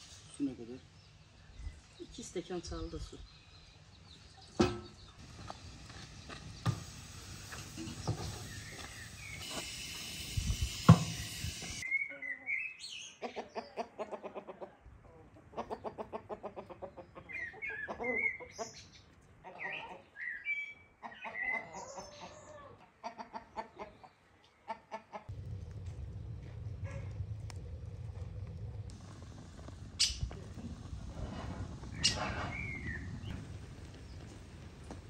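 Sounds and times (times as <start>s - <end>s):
chickens clucking: 13.2s - 18.8s, 21.0s - 25.4s.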